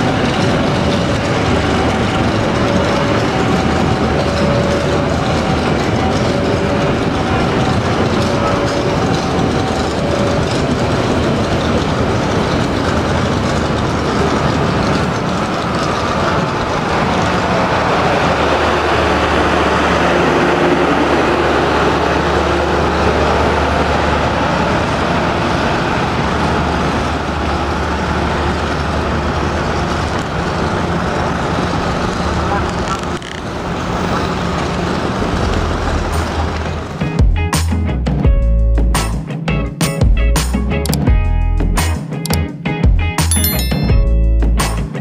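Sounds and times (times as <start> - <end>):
generator car low hum: 0.0 - 37.0
train wheels rumbling on rails: 0.0 - 43.0
wheels clickety-clack: 0.0 - 43.3.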